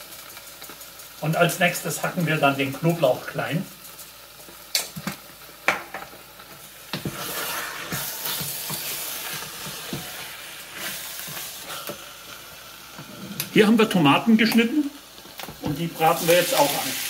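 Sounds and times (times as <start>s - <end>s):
meat sizzling: 0.0s - 17.0s
wooden spoon stirring in pot: 6.9s - 13.8s.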